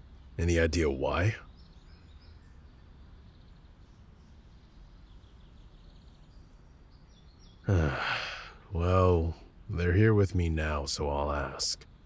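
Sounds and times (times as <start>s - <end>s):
distant bird chirps: 0.0s - 12.0s
man's voice: 7.7s - 11.8s.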